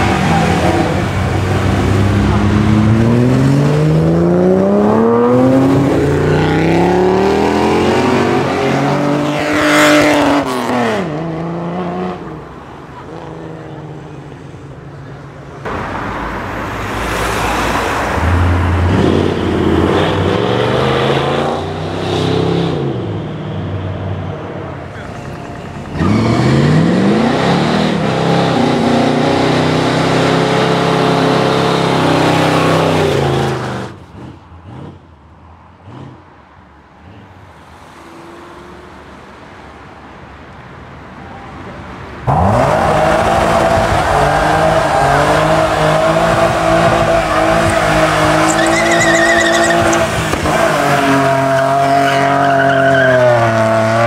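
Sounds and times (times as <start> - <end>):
car engines accelerating: 0.0 - 40.5, 41.8 - 54.0
car engine revving high: 25.9 - 35.0, 42.3 - 54.0
tyres spinning: 46.0 - 50.7.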